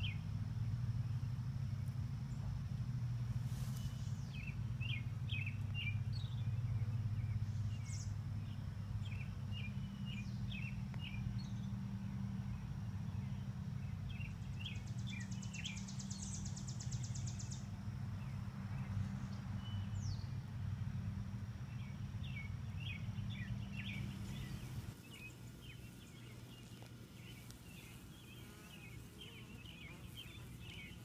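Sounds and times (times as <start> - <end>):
small birds chirping: 0.0 - 20.6, 21.2 - 31.0
steady low hum: 0.0 - 31.0.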